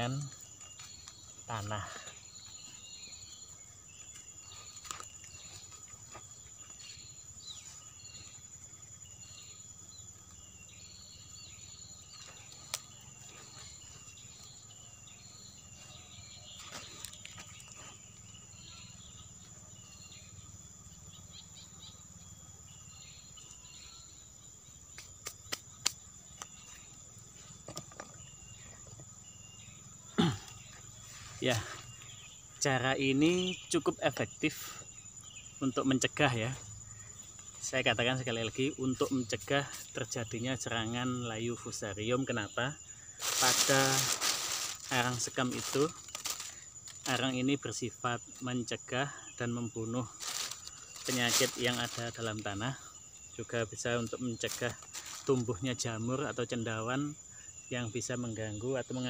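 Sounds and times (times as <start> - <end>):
high-pitched insect drone: 0.0 - 59.0
short insect chirps: 0.0 - 59.0.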